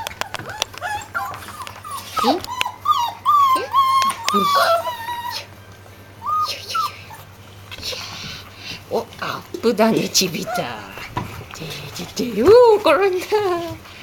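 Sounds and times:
puppies whining and yelping: 0:00.0 - 0:07.5, 0:10.4 - 0:11.1.

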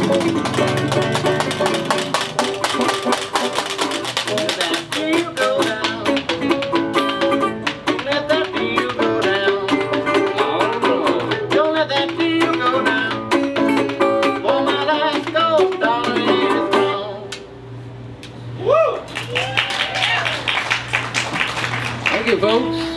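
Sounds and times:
banjo picking: 0:00.0 - 0:04.8, 0:05.4 - 0:17.1
resonator guitar picking: 0:00.0 - 0:17.8.

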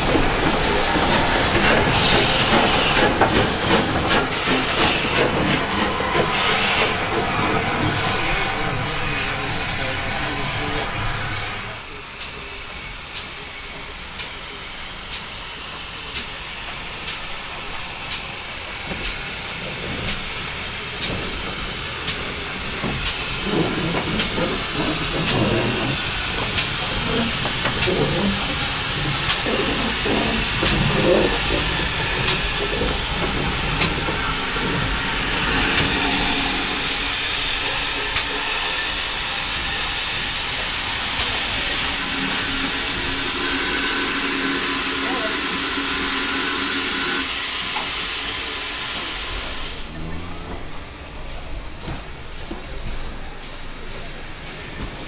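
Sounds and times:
steam hissing: 0:00.0 - 0:55.0
steam locomotive passing: 0:00.0 - 0:55.0.

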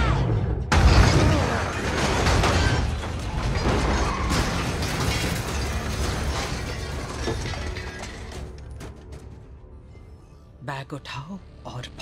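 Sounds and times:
clattering debris: 0:00.7 - 0:09.7
crunching and scraping metal: 0:00.7 - 0:09.8.

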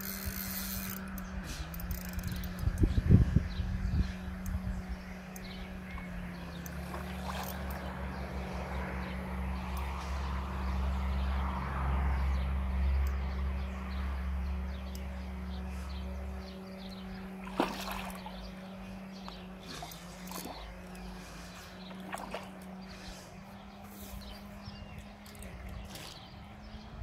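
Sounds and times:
steady low rumble: 0:00.8 - 0:27.0
fish splashing at water surface: 0:06.8 - 0:07.8, 0:17.4 - 0:18.4.

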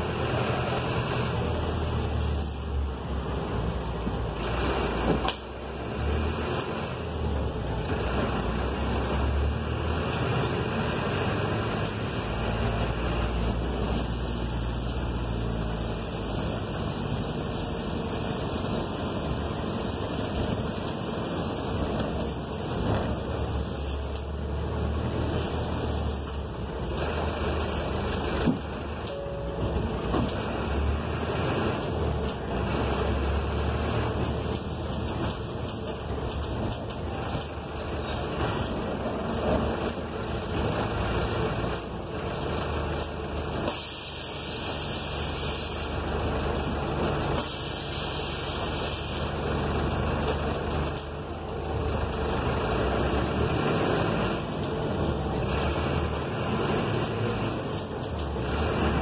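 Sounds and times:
bus engine running: 0:00.0 - 0:59.0
tyres on wet road: 0:00.0 - 0:59.0
hiss: 0:43.6 - 0:46.0, 0:47.4 - 0:49.4.

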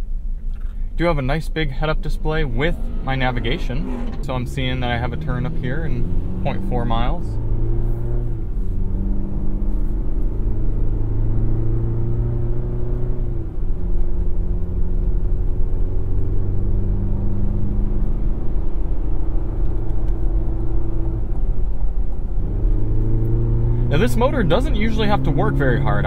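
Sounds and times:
truck engine revving under load: 0:01.7 - 0:26.0.

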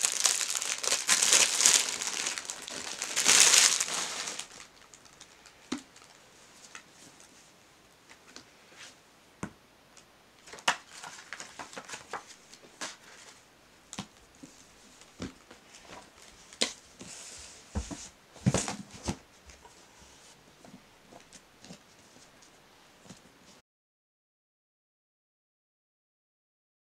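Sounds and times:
paper rustling: 0:00.0 - 0:07.3, 0:10.4 - 0:13.4
books tapping and knocking: 0:17.8 - 0:19.6.

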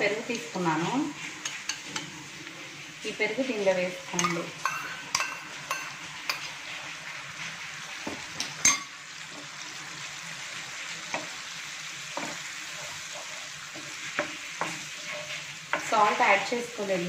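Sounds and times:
oil sizzling in frying pan: 0:00.0 - 0:17.0
wooden spatula stirring: 0:10.6 - 0:16.5.

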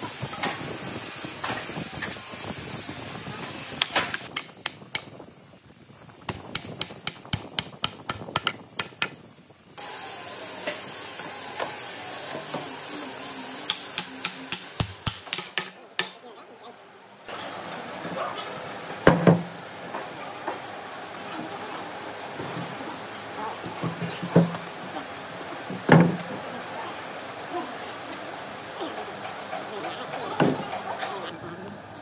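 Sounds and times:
steady hiss: 0:00.0 - 0:15.7.

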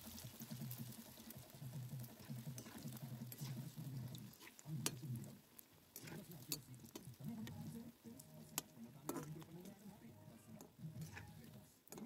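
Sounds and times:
oil sizzling: 0:00.0 - 0:12.0
metal spatula scraping iron pan: 0:02.0 - 0:05.0, 0:06.0 - 0:07.8, 0:08.4 - 0:09.6, 0:10.3 - 0:12.0.

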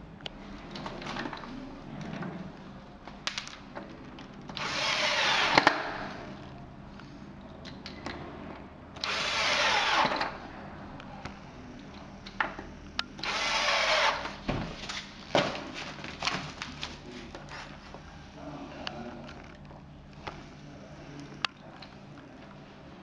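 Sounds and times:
cordless drill driving screws: 0:04.6 - 0:06.2, 0:09.0 - 0:10.4, 0:13.2 - 0:14.4.

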